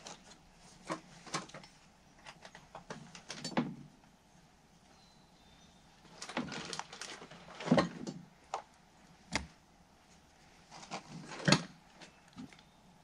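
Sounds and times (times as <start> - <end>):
objects knocking and clunking: 0.0 - 4.0, 6.1 - 8.7.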